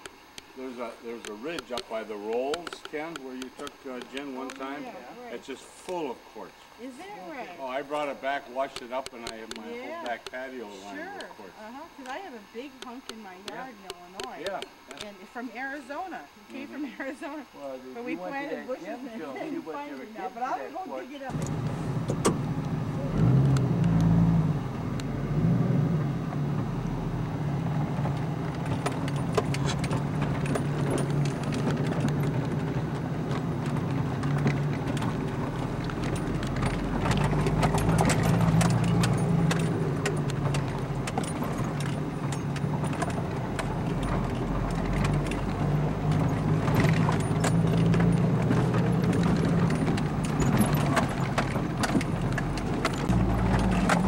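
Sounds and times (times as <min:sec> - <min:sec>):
vehicle engine running: 0:21.3 - 0:54.0
vehicle rattling over rocks: 0:21.3 - 0:54.0.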